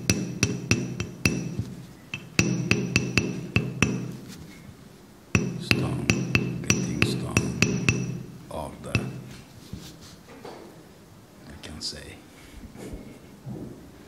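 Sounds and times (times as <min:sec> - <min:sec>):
carving tool tapping stone: 0:00.0 - 0:04.4, 0:05.4 - 0:09.4.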